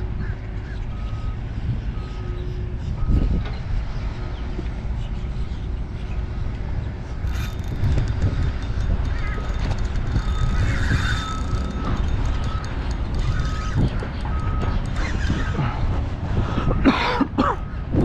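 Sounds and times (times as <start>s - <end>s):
wind rumble on microphone: 0.0s - 18.0s
vehicle reversing beeper: 0.9s - 4.3s, 10.2s - 15.7s, 16.4s - 16.8s.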